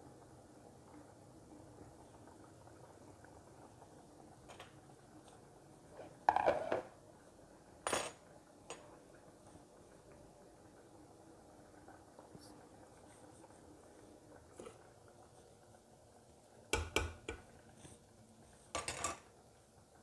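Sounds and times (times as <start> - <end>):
metal kitchenware clattering: 18.8 - 19.2.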